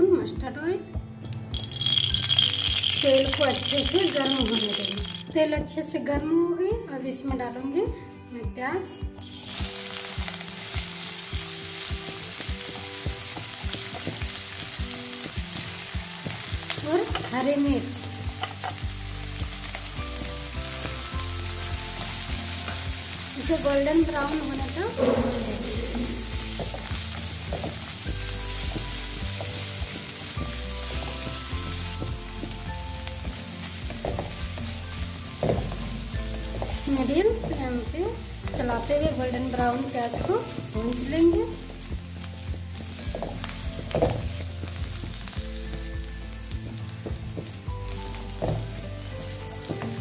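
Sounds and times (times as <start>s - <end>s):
onion sizzling in hot oil: 1.5s - 5.3s, 9.2s - 50.0s.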